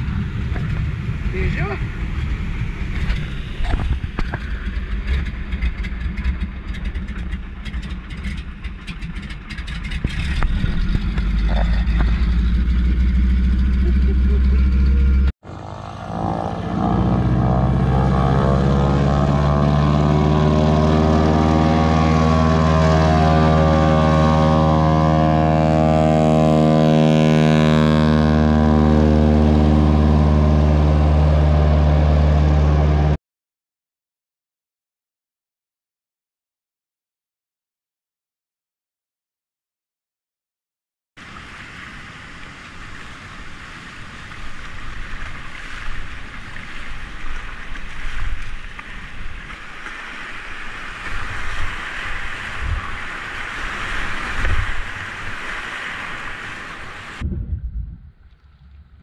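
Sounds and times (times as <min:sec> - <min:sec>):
plane engine droning across water: 0:00.0 - 0:33.2, 0:41.2 - 0:57.2
plane engine rough drone: 0:00.0 - 0:33.2.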